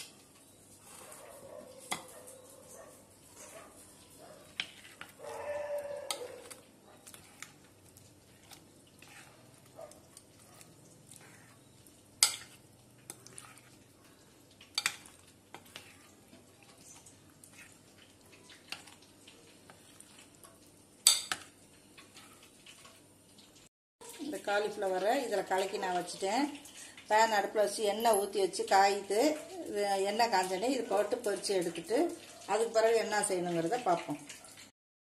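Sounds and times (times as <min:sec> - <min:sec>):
spoon stirring thick batter: 0:00.0 - 0:23.5
spoon clinking against metal bowl: 0:12.2 - 0:12.6, 0:21.0 - 0:21.5.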